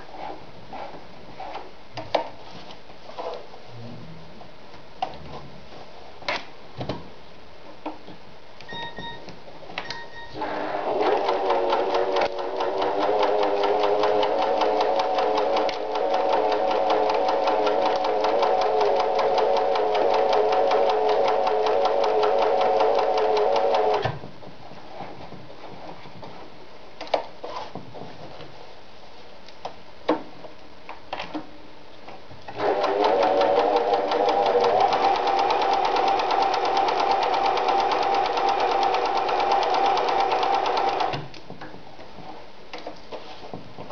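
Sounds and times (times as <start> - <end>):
short beeps: 8.7 - 10.4
sewing machine stitching: 10.4 - 24.1, 32.5 - 41.2.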